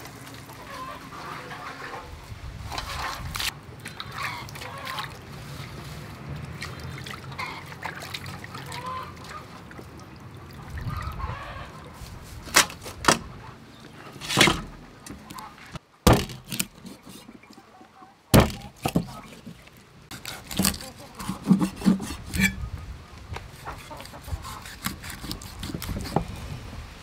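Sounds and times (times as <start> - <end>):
water sloshing in a bowl: 2.7 - 13.0, 16.4 - 22.6
cleaver chopping on wooden block: 16.1 - 17.3, 18.4 - 19.4, 20.1 - 22.6.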